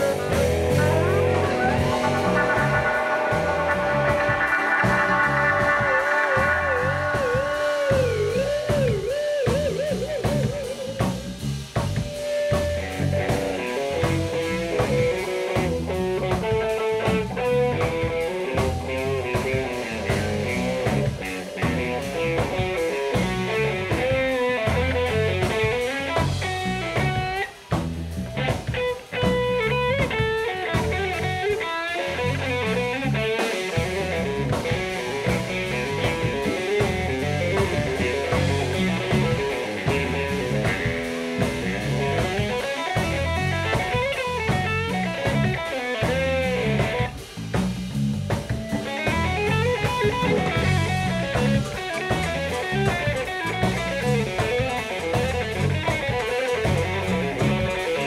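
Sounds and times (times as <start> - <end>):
lead melody bending in pitch: 0.0 - 8.8
funk jazz band playing: 0.0 - 58.0.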